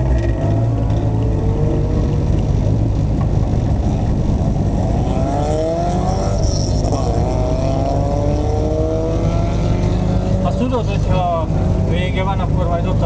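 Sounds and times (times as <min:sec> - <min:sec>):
car engine revving: 0:00.0 - 0:13.0.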